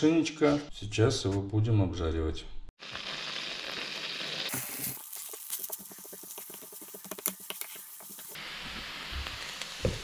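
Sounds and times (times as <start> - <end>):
butter sizzling in a pan: 2.8 - 10.0
onion frying: 2.8 - 10.0.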